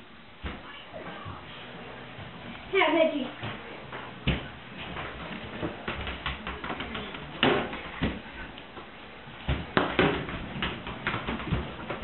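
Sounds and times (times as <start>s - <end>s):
ball bouncing on hard floor: 3.4s - 12.0s
ball kick thuds: 4.2s - 12.0s.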